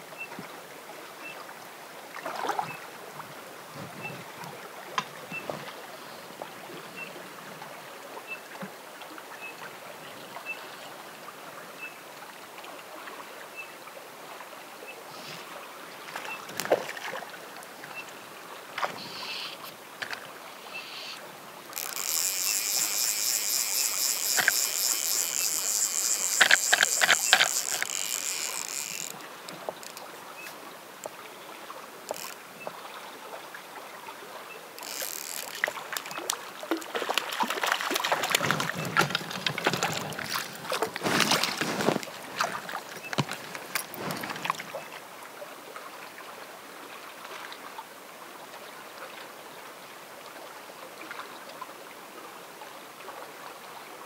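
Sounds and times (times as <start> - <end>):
creek water lapping: 0.5 - 11.6, 14.2 - 47.8
faint ticking: 20.7 - 30.1
sharp clicks: 21.8 - 30.1, 34.8 - 36.4.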